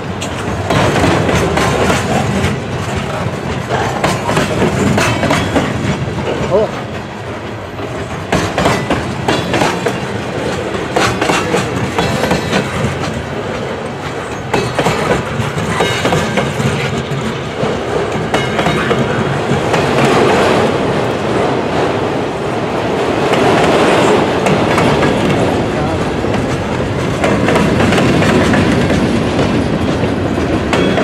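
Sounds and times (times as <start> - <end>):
wheels clicking over rail joints: 0.0 - 21.9, 23.3 - 31.0
freight train rolling past: 0.0 - 31.0.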